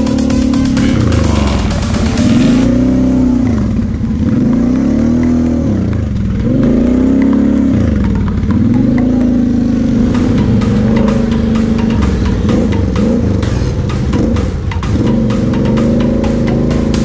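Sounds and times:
quad engine revving: 0:00.0 - 0:17.0
light ticking clatter: 0:02.6 - 0:09.8.

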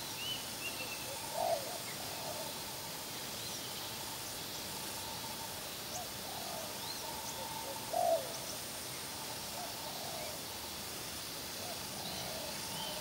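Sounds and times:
doves cooing: 0:09.7 - 0:10.4, 0:12.0 - 0:13.0.

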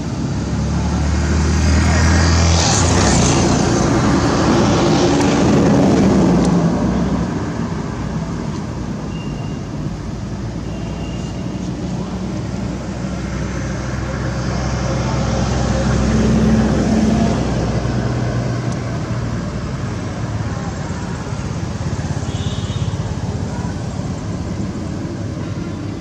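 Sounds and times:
vehicle engine passing by: 0:00.0 - 0:08.4, 0:12.0 - 0:22.3.

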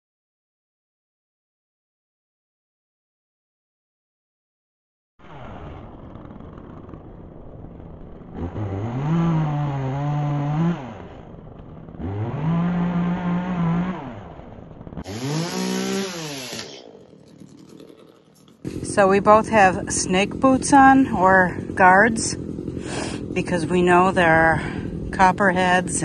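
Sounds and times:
chainsaw idling and revving: 0:06.2 - 0:26.0.

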